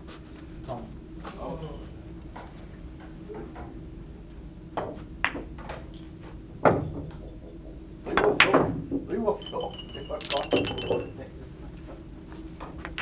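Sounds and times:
billiard balls clicking: 9.4s - 11.2s.

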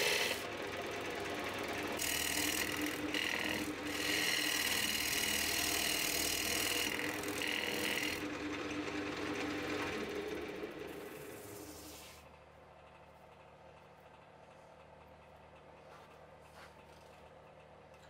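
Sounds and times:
lathe humming: 0.0s - 12.0s
gouge cutting wood on lathe: 0.0s - 12.2s.

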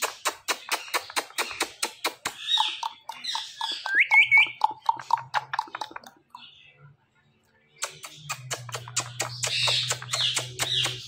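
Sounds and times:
kissing smacks: 0.0s - 2.4s, 7.8s - 11.0s
parrot chirps: 0.0s - 6.1s, 7.8s - 11.0s.

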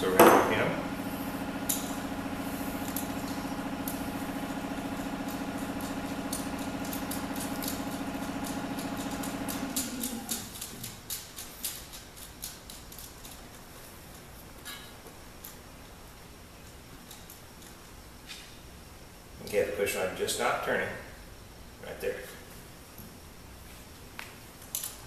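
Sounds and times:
machine hum: 0.0s - 10.9s.

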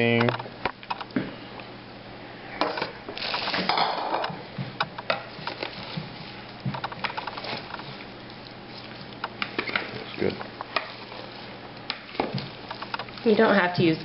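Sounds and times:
salad rustling in bowl: 5.2s - 14.0s.

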